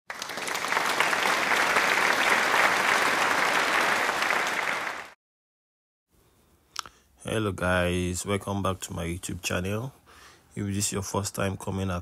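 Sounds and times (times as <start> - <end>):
crowd applauding: 0.1 - 5.2.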